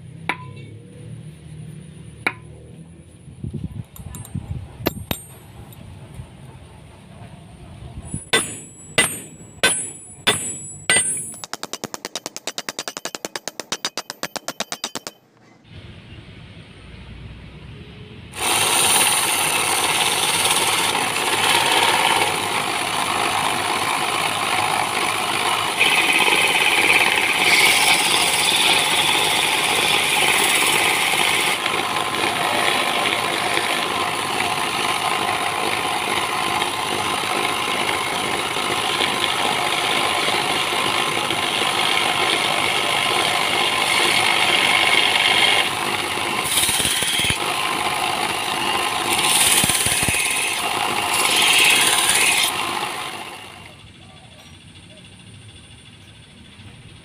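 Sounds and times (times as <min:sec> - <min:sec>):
metal grinding on sanding belt: 0:08.1 - 0:15.1, 0:18.4 - 0:53.5
belt sander running: 0:18.4 - 0:53.8.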